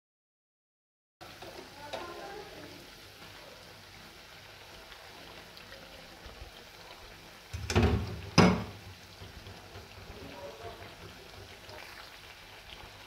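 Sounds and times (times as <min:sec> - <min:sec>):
food sizzling in deep-frying oil: 0:01.2 - 0:13.0.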